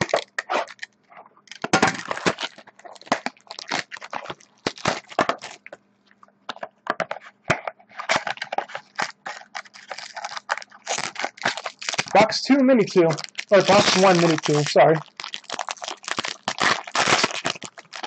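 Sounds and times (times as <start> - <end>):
packaging being torn open: 0.0 - 0.9, 1.5 - 5.7, 8.0 - 12.3, 13.0 - 18.0.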